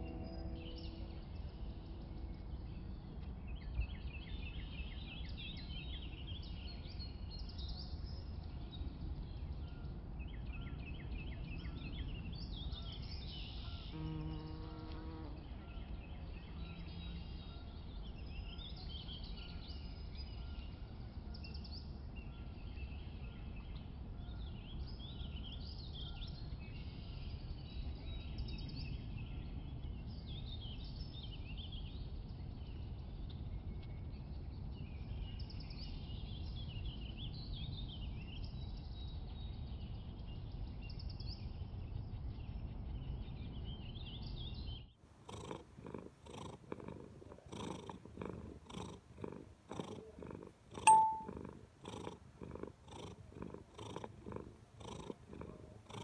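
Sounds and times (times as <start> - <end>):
small birds chirping: 0.0 - 56.0
cat purring: 45.1 - 56.0.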